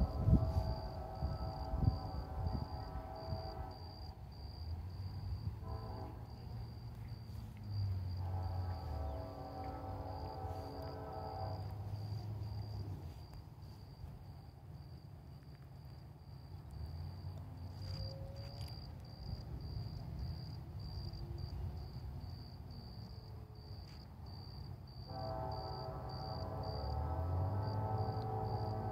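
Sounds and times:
locomotive horn: 0.0 - 13.3, 17.7 - 18.8, 25.0 - 28.9
freight train rumble: 0.0 - 28.9
insect chirping: 0.0 - 28.9.

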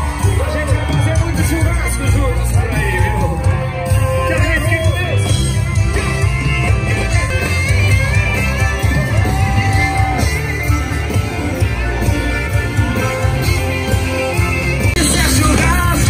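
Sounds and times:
live band with singer: 0.0 - 16.0.

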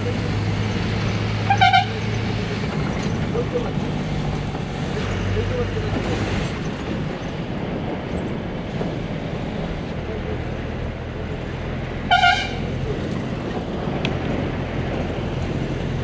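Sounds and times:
bus engine running: 0.0 - 16.0
road rumble: 0.0 - 16.0
horn honking: 1.4 - 2.2, 12.1 - 12.7.

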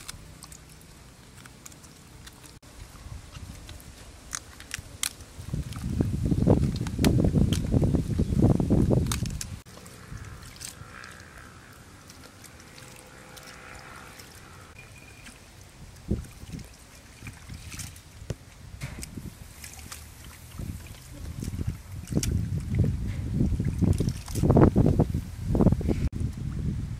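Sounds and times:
water dripping: 0.0 - 24.9
low water rush: 0.0 - 26.9
water sloshing in steel basin: 9.7 - 24.8.

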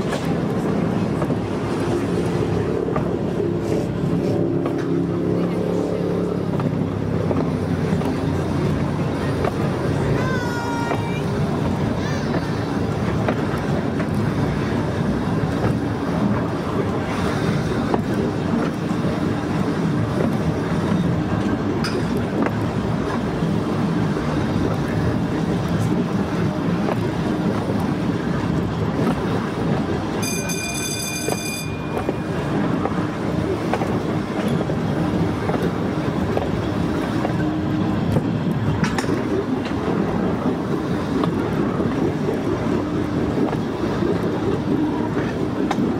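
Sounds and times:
train wheels clattering on rail: 0.0 - 45.9
high-pitched warning signal: 30.2 - 32.2.

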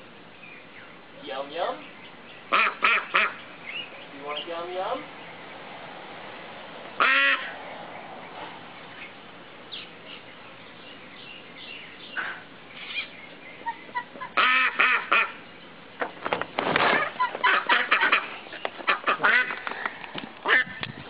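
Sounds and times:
ducks quacking: 2.5 - 3.9, 7.0 - 7.6, 12.1 - 15.5, 16.8 - 19.8, 20.4 - 20.9.

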